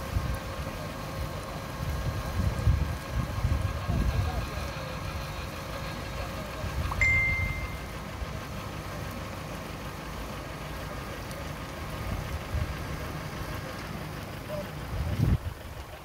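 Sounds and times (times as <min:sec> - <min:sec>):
sprinklers hissing: 0:00.0 - 0:16.0
steady low rumble: 0:00.0 - 0:16.0
short high tone: 0:07.0 - 0:08.0.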